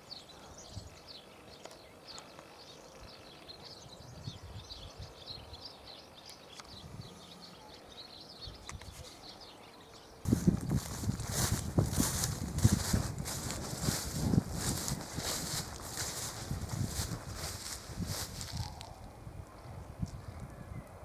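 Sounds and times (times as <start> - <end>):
small birds chirping: 0.0 - 21.0
footsteps through long grass: 10.3 - 19.1.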